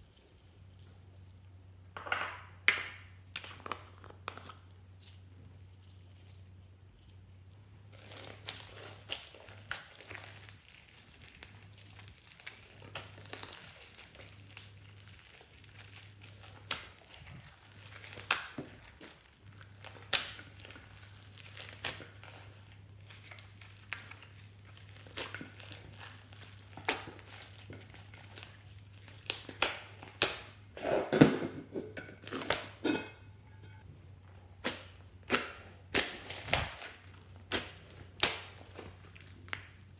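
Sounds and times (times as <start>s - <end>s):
slime crackling and squelching: 7.5s - 30.6s, 34.6s - 39.9s.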